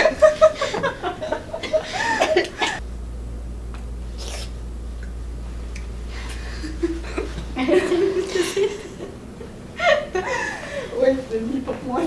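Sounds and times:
women laughing: 0.0s - 2.8s, 6.5s - 11.0s
steady low hum: 0.0s - 12.0s.

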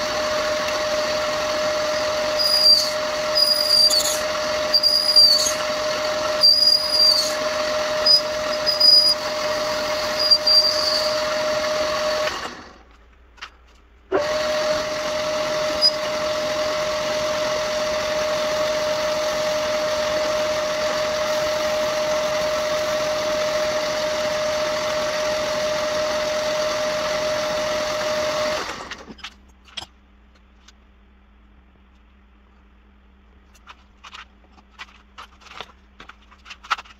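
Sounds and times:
metal lathe whining: 0.0s - 12.8s, 14.2s - 29.1s
cutting tool squeaking: 2.0s - 12.1s, 15.5s - 16.2s.

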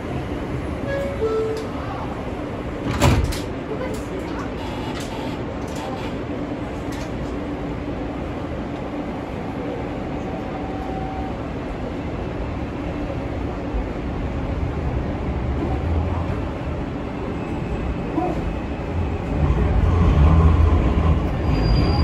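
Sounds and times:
subway car hum and rumble: 0.0s - 22.0s.

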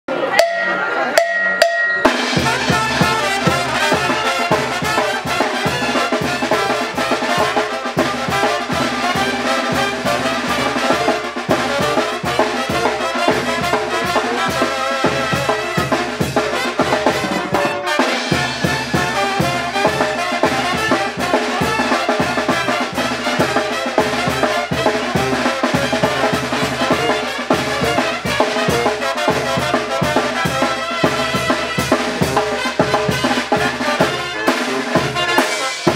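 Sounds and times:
brass band playing: 0.1s - 35.9s
sousaphone: 0.2s - 4.6s
percussion beat: 0.3s - 35.9s.

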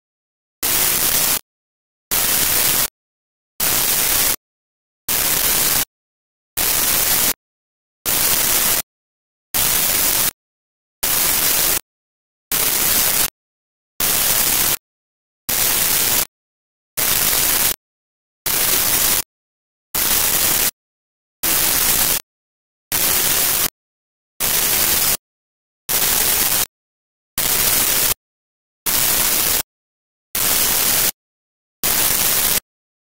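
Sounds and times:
bursts of hissing static: 11.0s - 11.8s, 18.5s - 19.3s, 20.0s - 20.8s, 21.4s - 22.2s, 22.9s - 23.7s, 31.9s - 32.6s.

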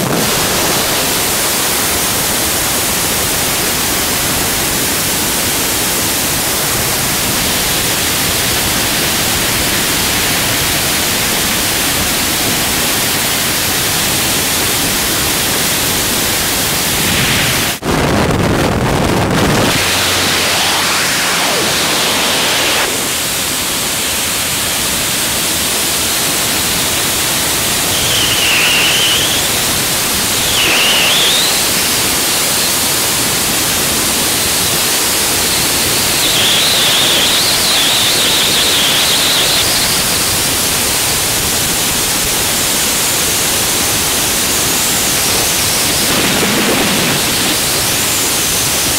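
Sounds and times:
freefall wind rushing: 0.0s - 48.9s
faint wind whistle: 27.7s - 32.8s, 35.4s - 40.4s.

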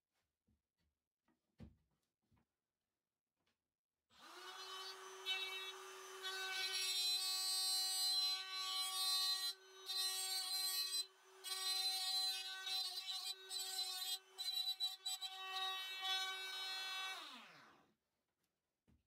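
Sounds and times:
router motor whine: 4.2s - 7.4s, 9.6s - 17.8s
router cutting into plywood: 4.2s - 17.9s.

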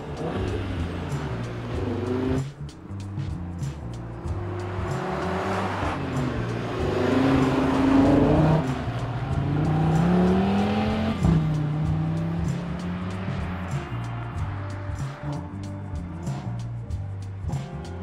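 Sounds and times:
car engine accelerating past: 0.0s - 2.6s, 4.0s - 15.5s.

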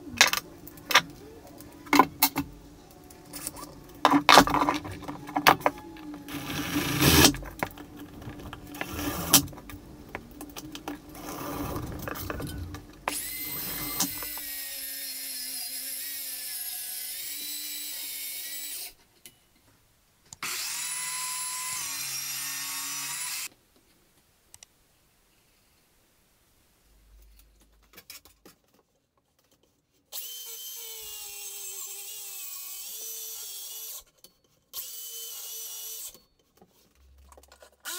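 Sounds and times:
track saw running: 4.8s - 7.8s
drill driving screws: 5.0s - 7.5s, 8.8s - 9.6s, 13.0s - 14.8s.

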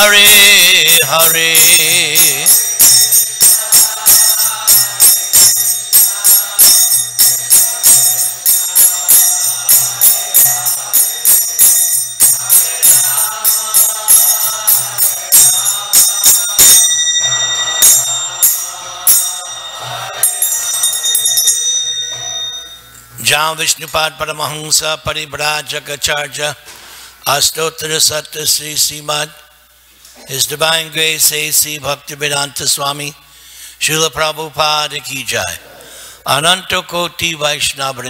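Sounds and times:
held chords: 0.0s - 24.2s
hand cymbals clashing: 0.3s - 23.2s.

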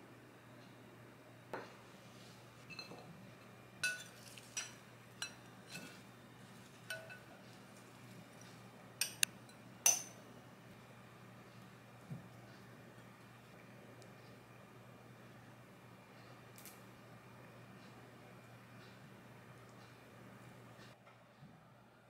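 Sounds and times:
glass bowl clinking on plate: 2.7s - 3.1s, 3.8s - 6.0s, 6.9s - 7.3s, 9.8s - 10.2s.

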